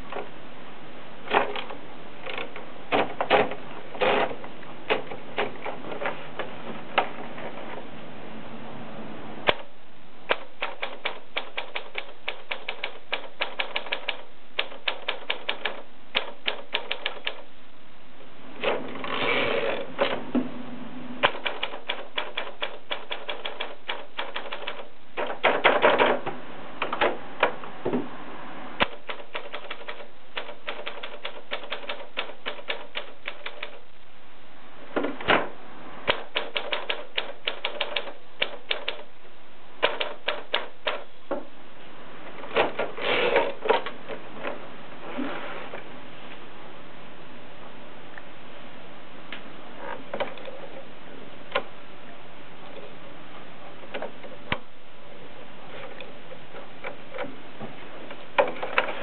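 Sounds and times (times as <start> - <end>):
manual typewriter keystrokes: 10.3 - 17.5, 21.2 - 26.2, 28.8 - 33.8, 36.0 - 39.1, 39.8 - 41.1.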